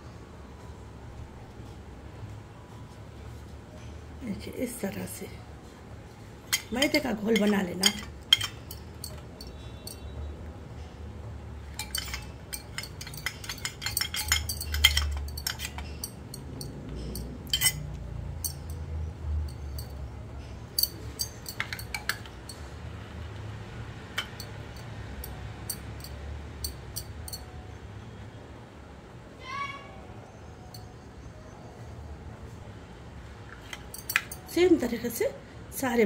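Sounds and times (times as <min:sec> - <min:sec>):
low steady hum: 0:00.0 - 0:29.1
metal spoon clinking in steel bowl: 0:06.5 - 0:10.2, 0:11.6 - 0:20.0, 0:20.7 - 0:22.7, 0:24.1 - 0:27.5, 0:33.6 - 0:34.8.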